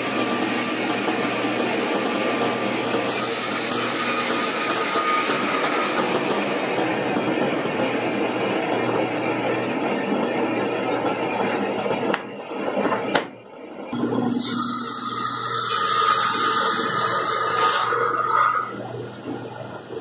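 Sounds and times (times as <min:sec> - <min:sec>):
panel saw cutting: 0:00.0 - 0:07.2, 0:14.0 - 0:18.8.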